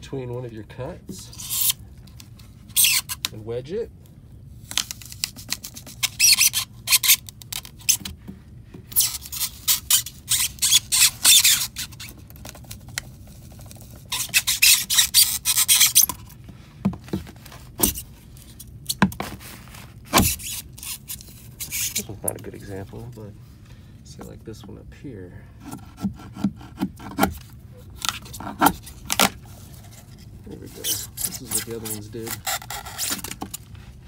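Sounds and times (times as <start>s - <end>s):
pry bar scraping foam: 1.1s - 1.8s, 2.6s - 3.4s, 5.1s - 16.4s, 17.1s - 23.2s, 25.6s - 34.0s.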